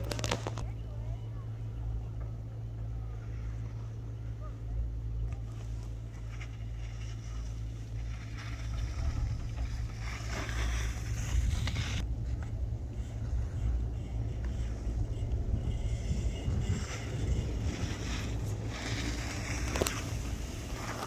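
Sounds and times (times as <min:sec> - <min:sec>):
wind buffeting microphone: 0:08.3 - 0:21.0.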